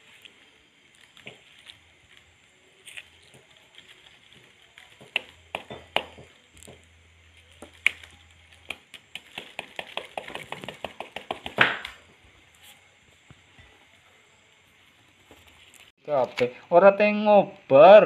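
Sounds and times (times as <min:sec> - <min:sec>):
papery comb crackling: 0:00.0 - 0:12.8.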